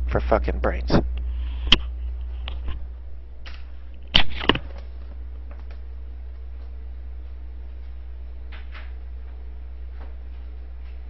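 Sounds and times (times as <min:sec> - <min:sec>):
steady low hum: 0:00.0 - 0:11.0
headset microphone handling noise: 0:00.9 - 0:05.8.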